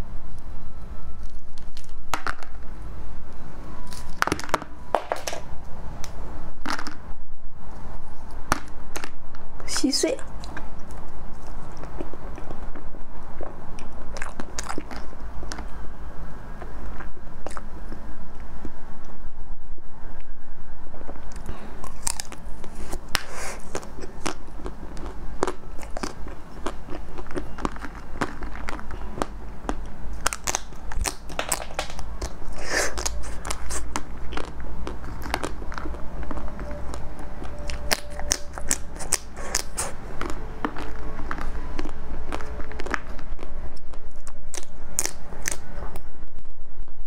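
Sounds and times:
biting and chewing ice cream: 0:10.2 - 0:15.9, 0:16.5 - 0:18.8, 0:21.0 - 0:46.1.

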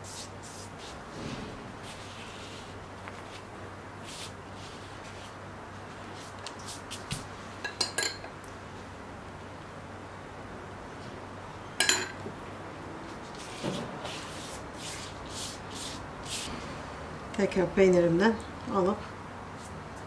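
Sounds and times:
pastry brush swishing: 0:13.3 - 0:16.6.

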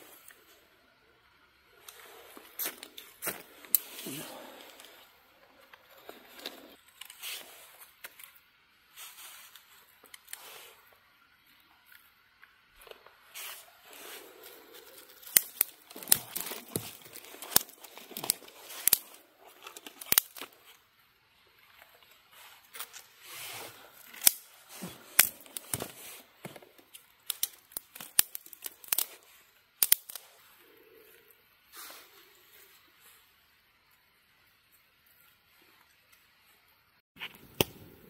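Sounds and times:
sticks rustling: 0:01.7 - 0:10.9, 0:12.8 - 0:33.2
twigs snapping: 0:12.8 - 0:20.8, 0:22.6 - 0:30.4, 0:37.2 - 0:38.0.

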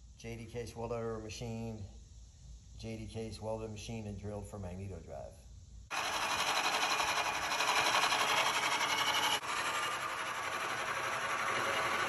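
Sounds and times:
milling machine cutting metal: 0:05.9 - 0:12.0.

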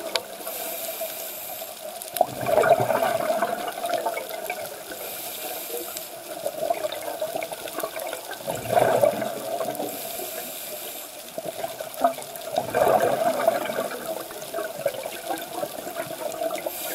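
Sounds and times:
faint crackling: 0:00.0 - 0:16.9
regulator inhale hiss: 0:00.2 - 0:02.1, 0:04.8 - 0:06.4, 0:09.9 - 0:11.4, 0:16.6 - 0:16.9
exhaled bubbles rushing: 0:02.1 - 0:05.0, 0:06.1 - 0:10.5, 0:11.3 - 0:16.9.

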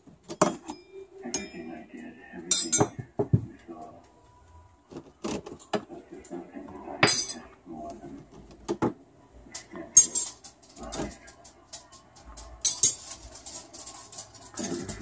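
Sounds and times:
metal cutlery clinking: 0:09.6 - 0:15.0.

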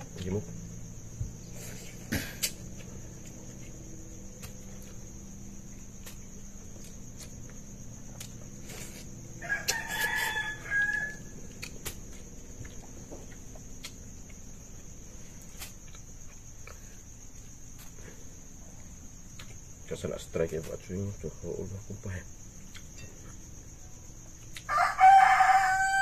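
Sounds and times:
crickets chirring: 0:00.0 - 0:26.0
rooster crowing: 0:09.3 - 0:11.6, 0:24.7 - 0:26.0.

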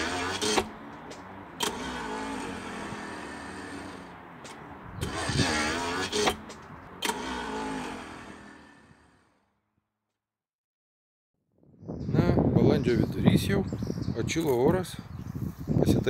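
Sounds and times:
pump motor whining: 0:00.0 - 0:09.4.

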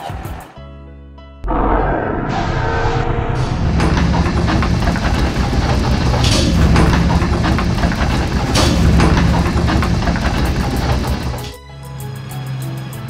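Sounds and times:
heavy truck engine running: 0:01.5 - 0:11.6.

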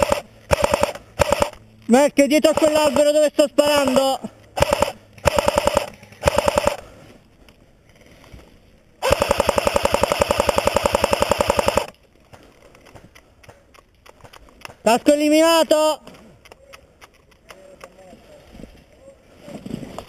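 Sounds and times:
airsoft rifle firing bursts: 0:00.0 - 0:01.6, 0:04.6 - 0:06.9, 0:09.0 - 0:12.0.

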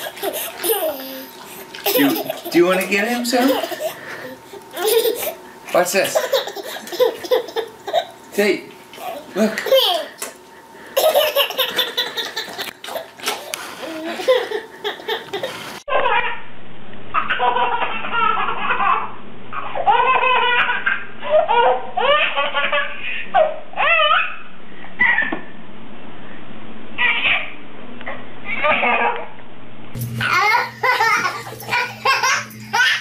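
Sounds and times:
baby laughing: 0:00.0 - 0:05.4, 0:06.0 - 0:08.2, 0:09.0 - 0:10.3, 0:11.0 - 0:16.4, 0:17.2 - 0:24.4, 0:30.2 - 0:33.0
low steady hum: 0:00.0 - 0:33.0
baby squealing laughter: 0:14.0 - 0:16.4, 0:17.2 - 0:24.4, 0:27.0 - 0:27.5.

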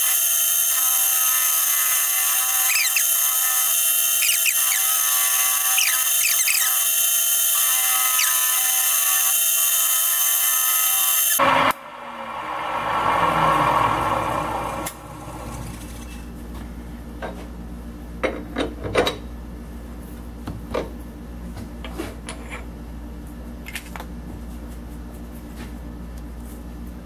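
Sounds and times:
machine motor humming: 0:00.0 - 0:16.1.

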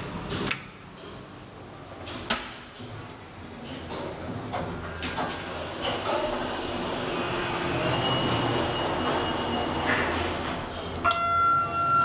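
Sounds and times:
elevator ride rushing noise: 0:04.4 - 0:12.0.

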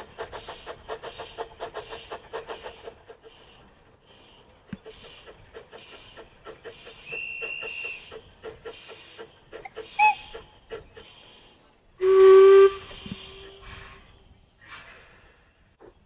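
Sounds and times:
steam hissing: 0:00.0 - 0:15.2
steam locomotive exhaust beats: 0:00.0 - 0:16.0
steam whistle blast: 0:12.0 - 0:13.9.

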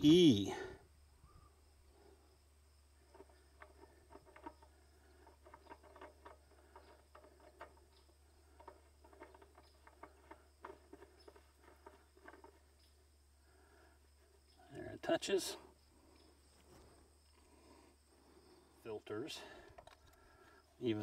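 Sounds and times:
oil filter ticking and scraping: 0:03.0 - 0:12.7.

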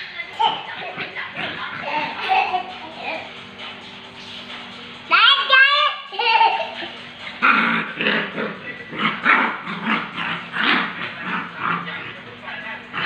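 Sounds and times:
puppies growling: 0:00.5 - 0:03.5, 0:06.7 - 0:13.0.

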